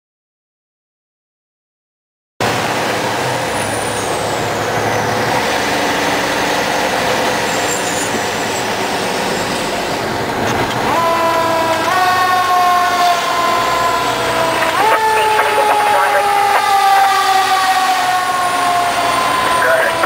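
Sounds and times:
fire engine engine and road noise: 0:02.4 - 0:20.0
siren wailing: 0:11.0 - 0:20.0.

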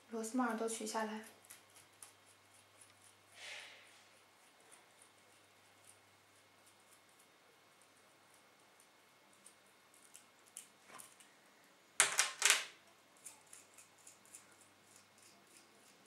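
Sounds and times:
metal clatter on table: 0:12.0 - 0:12.7.

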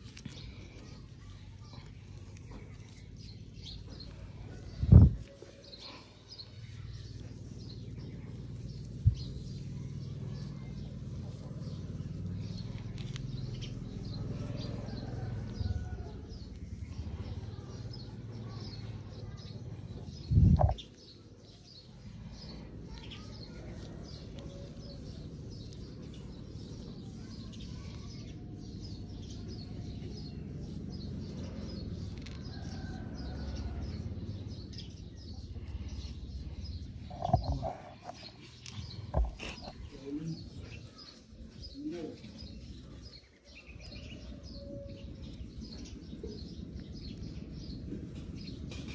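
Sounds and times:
birds chirping: 0:00.0 - 0:48.9
low rumble: 0:19.8 - 0:20.8.

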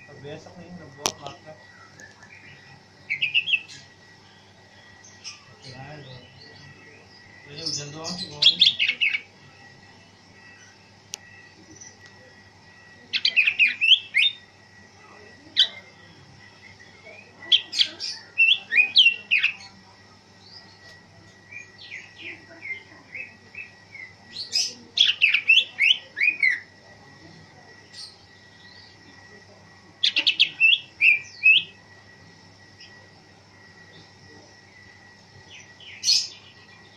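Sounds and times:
bird chirping and whistling: 0:30.2 - 0:31.7.

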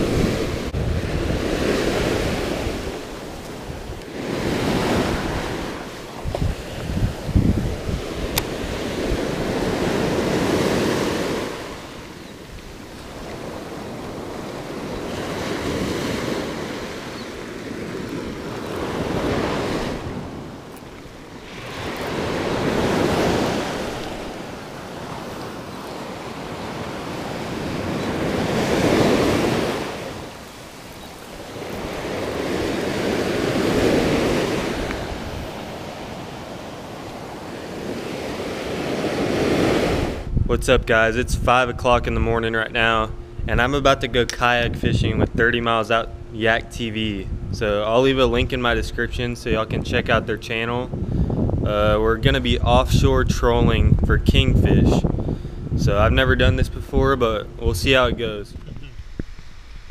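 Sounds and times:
surf breaking on beach: 0:00.0 - 0:40.4
wind buffeting microphone: 0:00.0 - 0:59.9.

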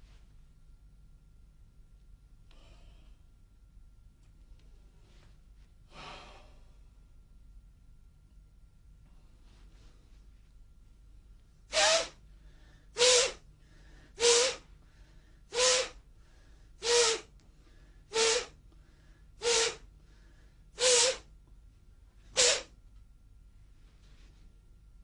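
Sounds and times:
sharp forceful breaths: 0:11.7 - 0:21.3, 0:22.3 - 0:22.7.

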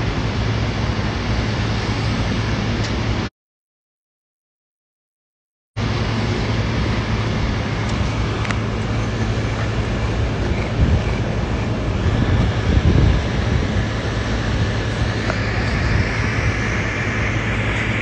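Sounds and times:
vehicle rumble with deep hum: 0:05.8 - 0:18.0.

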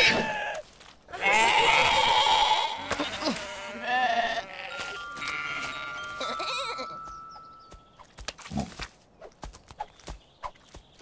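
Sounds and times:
cartoon sheep bleating: 0:00.0 - 0:07.0.

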